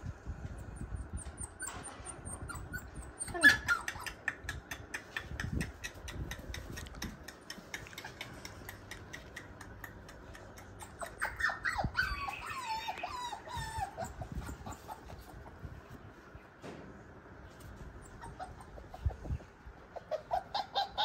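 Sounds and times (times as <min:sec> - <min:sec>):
puppy whimpering: 0:00.8 - 0:04.3, 0:07.6 - 0:15.7, 0:18.0 - 0:19.4, 0:20.0 - 0:21.0.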